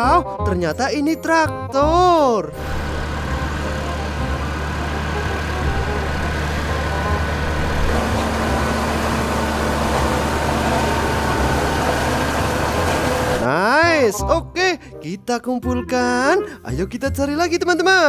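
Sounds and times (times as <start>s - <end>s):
tractor diesel engine running: 2.6s - 14.1s.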